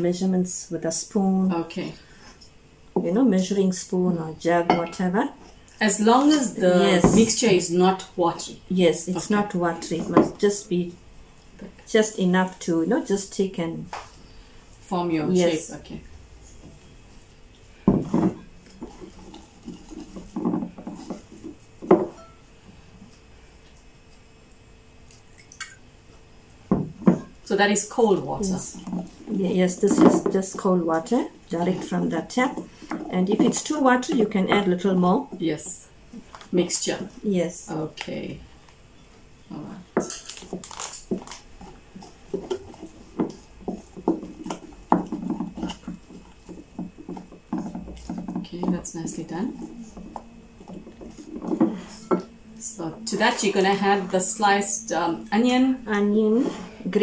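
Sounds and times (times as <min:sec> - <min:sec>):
spoon stirring batter in glass bowl: 0:18.6 - 0:22.4, 0:40.0 - 0:54.6
low hum: 0:41.6 - 0:57.0.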